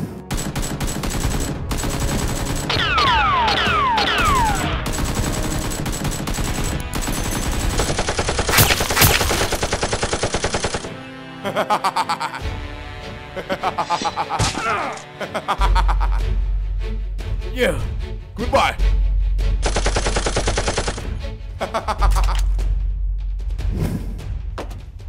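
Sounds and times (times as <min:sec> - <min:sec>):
rapid toy blaster gunfire: 0:00.4 - 0:10.9.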